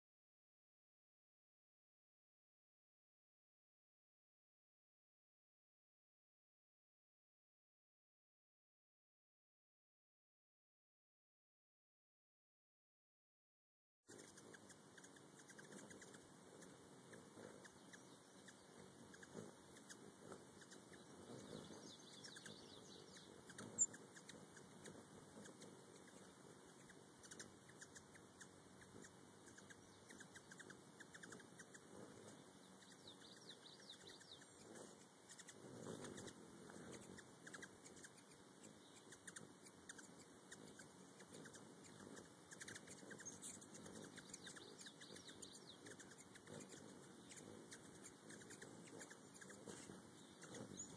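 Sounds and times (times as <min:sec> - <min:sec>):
hummingbird wing hum: 0:14.1 - 0:50.9
hummingbirds squeaky chirps: 0:14.1 - 0:50.9.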